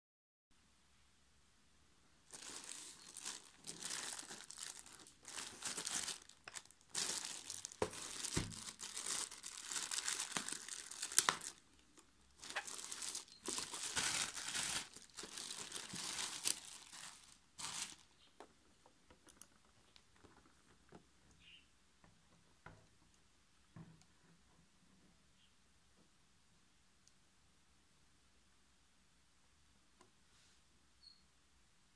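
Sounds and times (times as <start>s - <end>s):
plastic bag crinkling: 2.3s - 18.5s, 19.1s - 21.0s.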